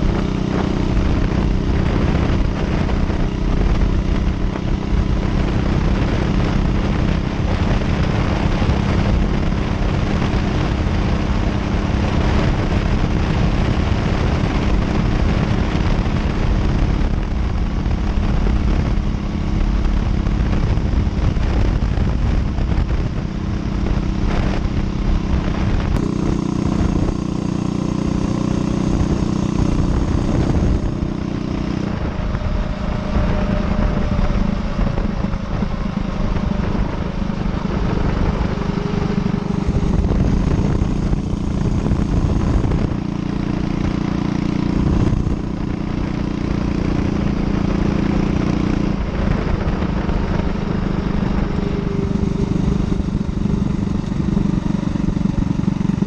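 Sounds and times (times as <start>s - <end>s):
motorcycle engine running: 0.0s - 56.0s
wind rush on microphone: 0.0s - 56.0s.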